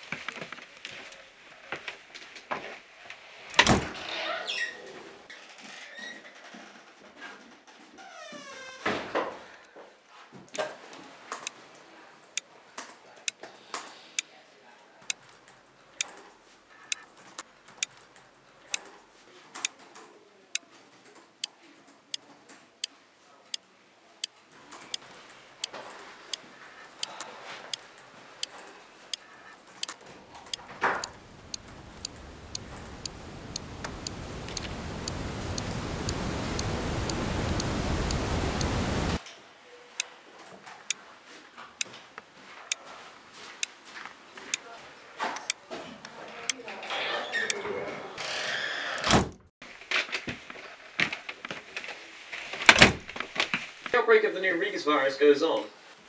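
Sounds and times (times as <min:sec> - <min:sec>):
noise: 0:00.0 - 0:56.0
wall clock ticking: 0:16.8 - 0:17.1, 0:24.2 - 0:39.2.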